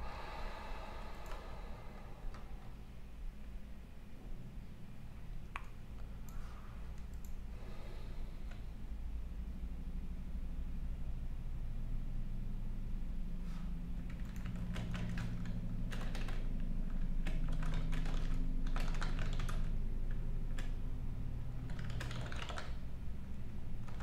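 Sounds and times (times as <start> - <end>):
steady low hum: 0.0 - 24.0
keyboard typing clicks: 5.4 - 7.4, 14.1 - 20.7, 21.6 - 22.8, 23.8 - 24.0.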